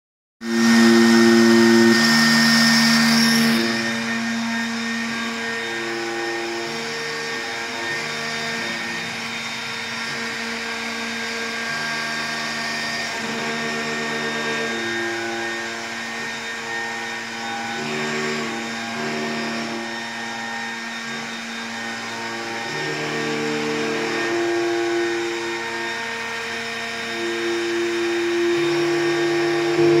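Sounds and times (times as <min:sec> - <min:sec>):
machine whine: 0:00.4 - 0:30.0
router spindle hissing: 0:00.4 - 0:30.0.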